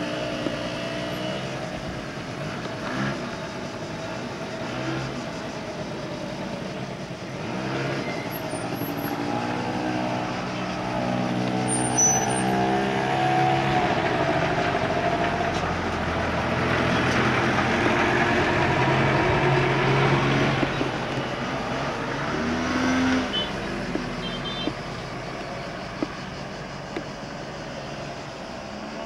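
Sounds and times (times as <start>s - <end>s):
scooter engine revving past: 16.3s - 24.2s.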